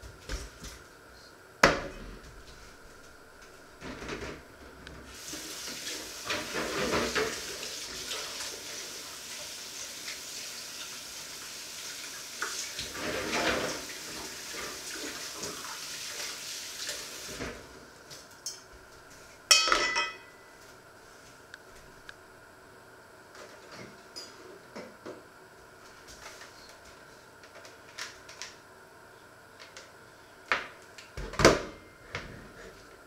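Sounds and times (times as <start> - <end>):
tap water running into sink: 5.2 - 17.5.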